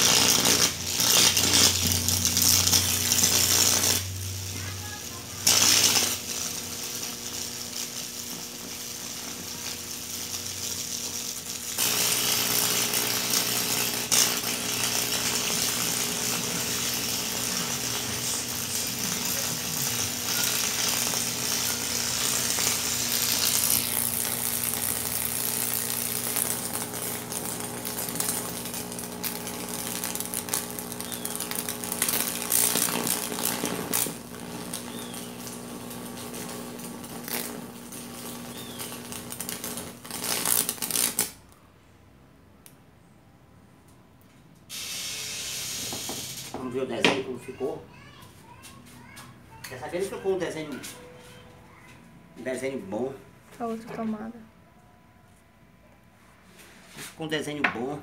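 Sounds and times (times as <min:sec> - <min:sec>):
sharp crack: 0:00.0 - 0:04.2, 0:11.7 - 0:41.4
electric arc crackling buzz: 0:00.0 - 0:41.6, 0:44.7 - 0:46.8.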